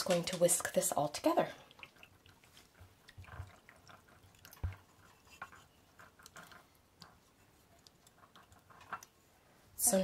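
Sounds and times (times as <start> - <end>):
whisk swishing in a bowl: 1.8 - 9.4.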